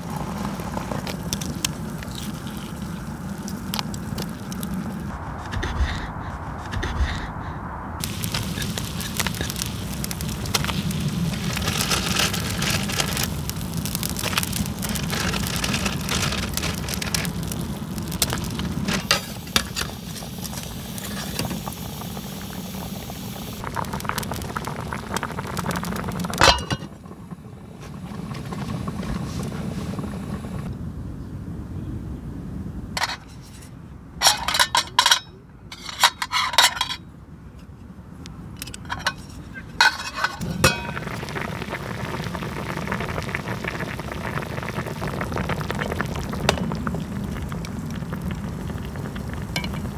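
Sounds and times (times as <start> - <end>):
soup boiling in a pot: 0.0 - 5.1, 8.0 - 30.7, 40.2 - 49.9
wood fire crackling and popping: 0.0 - 7.3, 8.0 - 30.7, 39.8 - 49.9
metal cookware clinking: 26.4 - 26.9, 34.2 - 37.0, 38.6 - 41.0.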